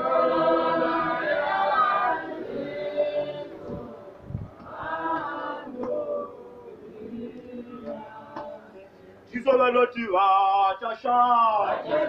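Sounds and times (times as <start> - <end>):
congregation singing a hymn: 0.0 - 9.0, 11.5 - 12.0.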